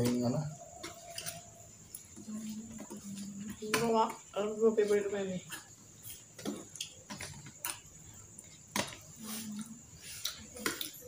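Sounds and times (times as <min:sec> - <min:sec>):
chewing: 0:09.2 - 0:11.0.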